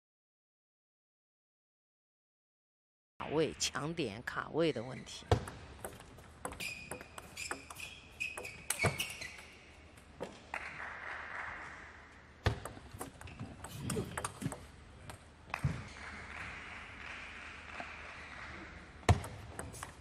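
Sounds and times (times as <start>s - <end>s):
table tennis ball knocking: 5.3s - 9.5s, 12.4s - 15.7s, 19.1s - 20.0s
high squeak: 6.5s - 9.6s.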